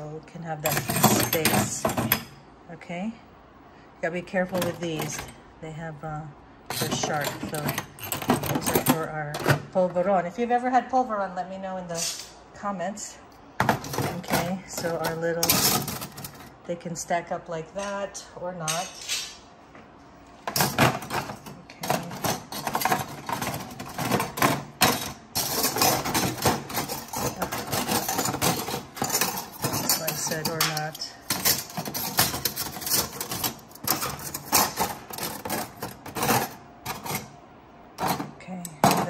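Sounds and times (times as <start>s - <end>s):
metal utensils clinking and rattling: 0.6s - 2.3s, 4.5s - 5.4s, 6.7s - 9.6s, 13.6s - 16.6s, 20.5s - 37.4s.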